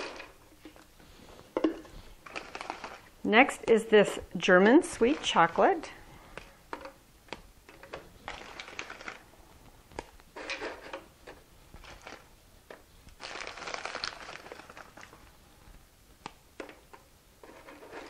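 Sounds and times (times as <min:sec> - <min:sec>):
paper wrapper crinkling: 0:02.2 - 0:03.1, 0:08.3 - 0:09.3, 0:11.8 - 0:12.3, 0:13.1 - 0:15.3.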